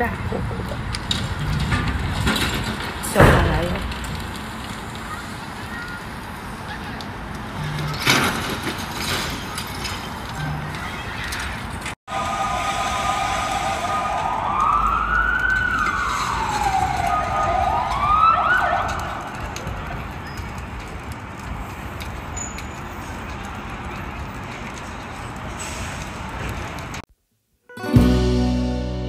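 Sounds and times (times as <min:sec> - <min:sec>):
fire engine siren wailing: 0:12.1 - 0:21.1.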